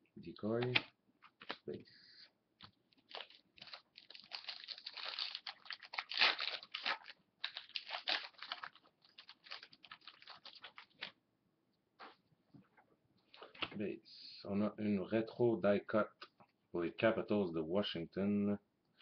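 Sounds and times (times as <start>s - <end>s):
foil wrapper crinkling: 2.9s - 11.1s.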